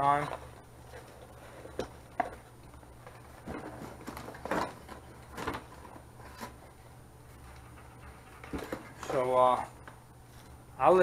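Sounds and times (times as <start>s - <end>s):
steady low hum: 0.0s - 11.0s
cardboard packaging rustling: 0.1s - 7.8s.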